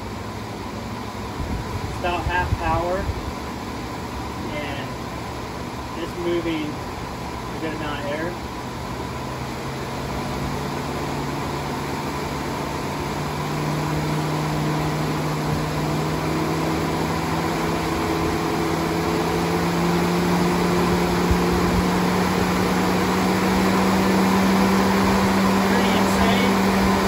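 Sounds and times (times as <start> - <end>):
electric cooling fans blowing: 0.0 - 27.0.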